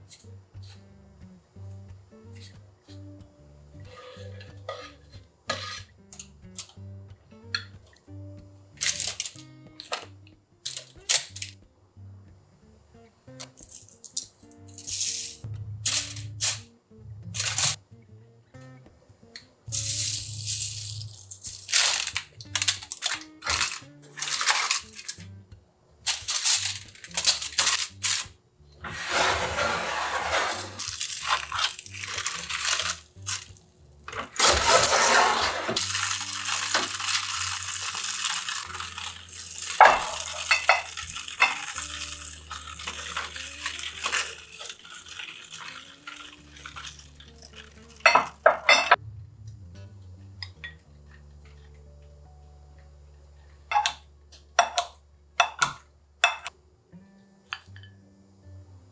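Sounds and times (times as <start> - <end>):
soft background music: 0.0 - 58.9
seasoning shaker shaking: 8.8 - 9.4, 10.7 - 11.5, 13.6 - 16.6, 17.4 - 17.8, 19.7 - 25.2, 26.1 - 28.3, 30.1 - 33.6, 34.4 - 48.8
dishes clinking: 39.8 - 41.8, 48.0 - 49.0, 53.7 - 54.0, 54.6 - 56.5.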